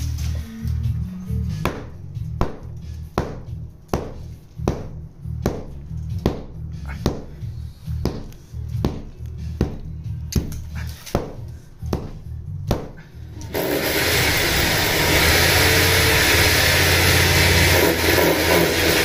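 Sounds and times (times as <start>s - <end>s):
angle grinder cutting masonry: 13.4s - 19.0s.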